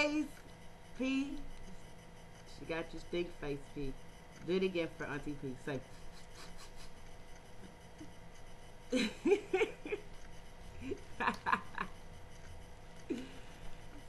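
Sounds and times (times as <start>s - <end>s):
laughter: 6.0s - 7.0s, 8.9s - 10.1s, 10.8s - 12.0s.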